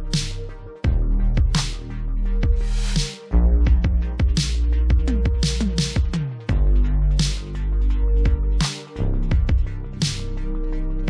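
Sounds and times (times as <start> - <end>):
electronic music: 0.0 - 11.0
heavy bass line: 0.0 - 11.0
deep kick drums: 0.9 - 1.7, 2.4 - 2.7, 3.6 - 7.4, 8.2 - 8.6, 9.3 - 9.8.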